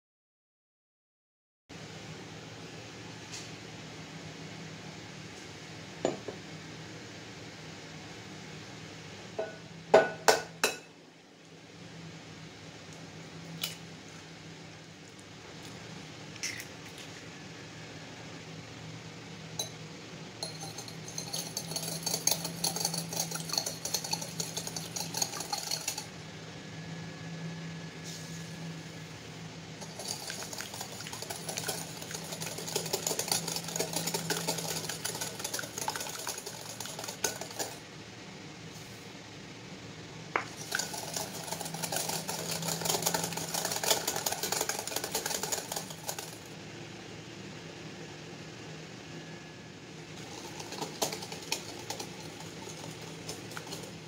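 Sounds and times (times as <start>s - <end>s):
whisk rattling against glass bowl: 20.4s - 26.1s, 29.8s - 37.8s, 40.5s - 46.5s, 50.2s - 54.0s.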